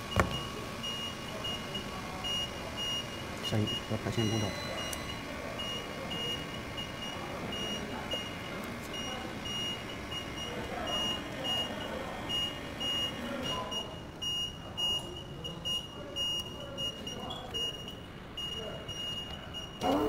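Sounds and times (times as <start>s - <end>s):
steady background noise: 0.0s - 20.0s
high electronic beep: 2.3s - 8.4s.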